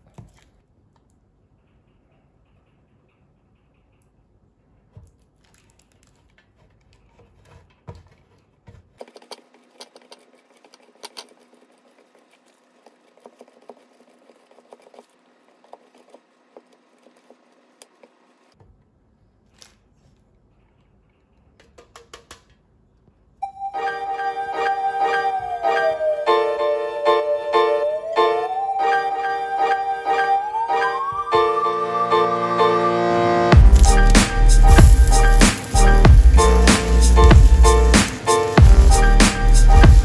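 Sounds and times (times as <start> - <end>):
cheese grating on a metal grater: 6.0 - 18.4.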